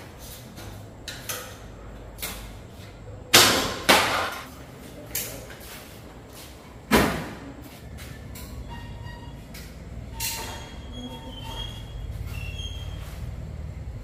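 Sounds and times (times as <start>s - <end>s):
sharp knocks: 3.3s - 4.5s.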